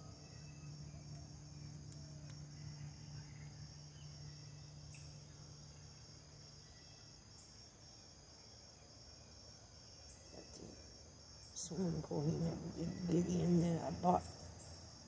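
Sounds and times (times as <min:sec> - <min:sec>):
insects chirping: 0:00.0 - 0:15.0
low steady hum: 0:09.2 - 0:15.0.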